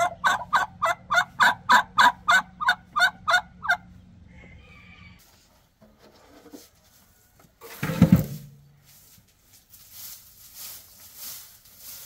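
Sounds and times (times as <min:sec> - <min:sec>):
broom sweeping hay: 0:08.6 - 0:12.0.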